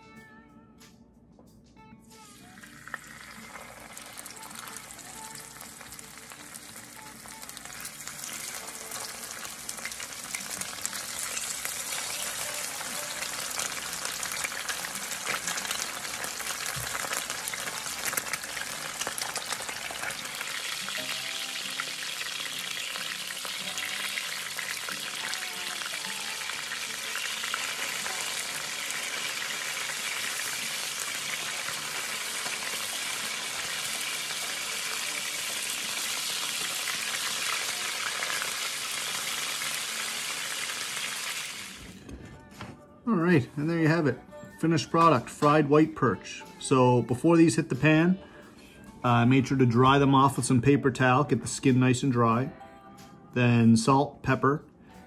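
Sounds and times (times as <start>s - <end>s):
fish sizzling in hot oil: 2.3s - 41.9s.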